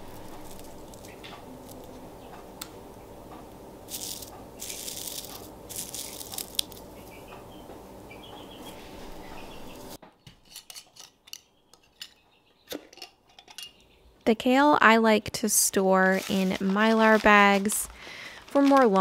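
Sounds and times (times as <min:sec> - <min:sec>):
dried herbs crackling and crunching: 0:00.0 - 0:02.0, 0:03.8 - 0:07.2, 0:16.0 - 0:19.0
steady low hum: 0:00.0 - 0:10.0.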